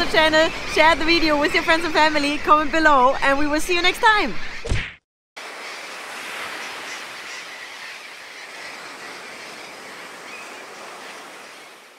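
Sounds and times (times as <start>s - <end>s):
sea surf washing on shore: 5.4s - 11.9s.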